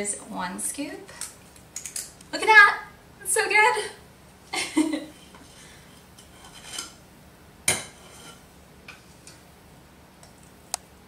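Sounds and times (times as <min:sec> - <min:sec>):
scoop scraping dough: 0:07.9 - 0:08.4.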